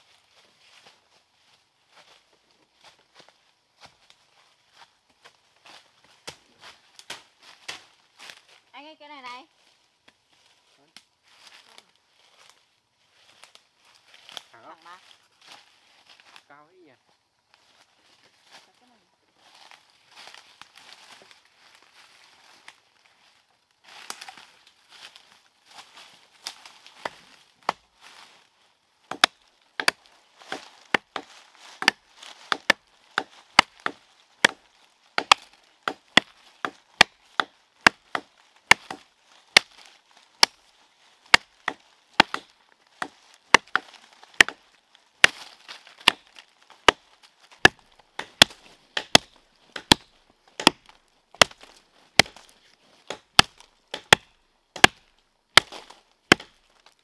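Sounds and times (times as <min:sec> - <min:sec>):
blade chopping wood: 0:29.1 - 0:40.6, 0:41.3 - 0:44.6, 0:45.2 - 0:56.6.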